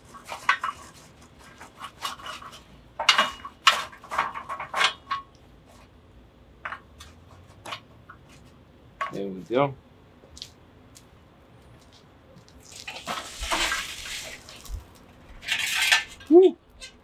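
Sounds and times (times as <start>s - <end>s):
charcoal briquettes clinking: 0.0s - 5.4s, 11.7s - 16.9s.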